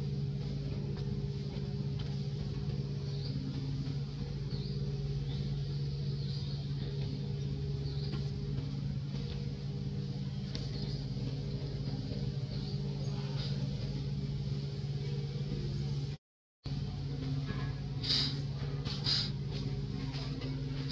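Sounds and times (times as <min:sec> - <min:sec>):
low mechanical hum: 0:00.0 - 0:20.9.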